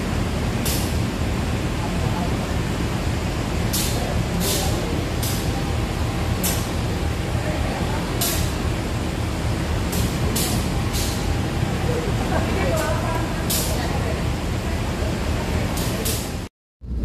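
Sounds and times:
diesel locomotive idling: 0.0 - 16.5
sharp air hisses: 9.9 - 11.3.

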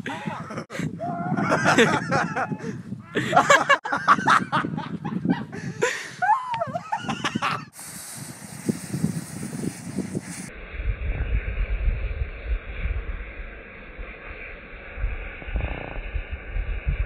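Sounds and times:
people laughing and yelping: 0.0 - 7.7
steady hiss: 7.1 - 10.6.

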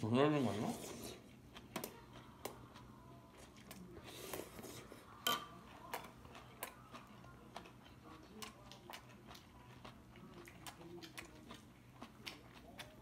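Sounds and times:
chopsticks and spoon clinking dishes: 5.2 - 6.2.

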